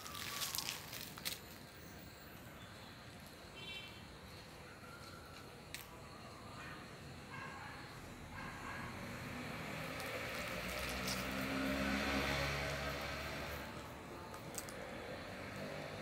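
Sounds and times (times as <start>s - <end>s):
vehicle passing by: 8.2s - 16.0s.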